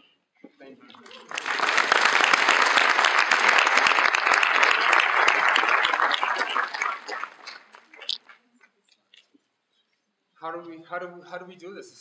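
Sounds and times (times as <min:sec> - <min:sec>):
audience applauding: 0:00.9 - 0:08.4.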